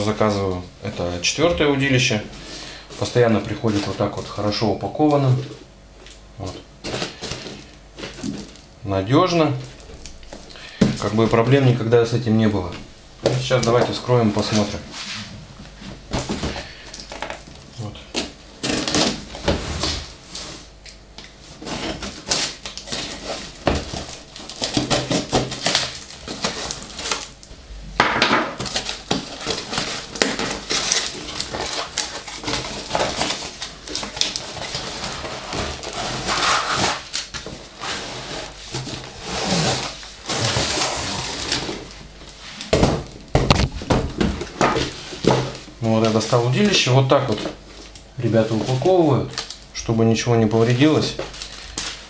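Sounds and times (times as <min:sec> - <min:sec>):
cardboard and tape tearing: 0:16.1 - 0:20.8, 0:21.6 - 0:27.4, 0:28.6 - 0:42.0.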